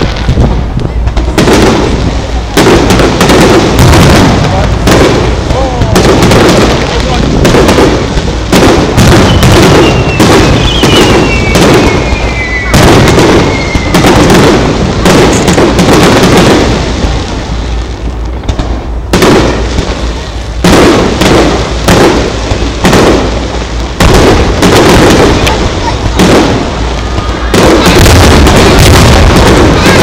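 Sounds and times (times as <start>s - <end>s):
firework shells bursting: 0.0s - 17.4s
fireworks crackling: 0.0s - 30.0s
falling firework whistle: 9.0s - 15.6s.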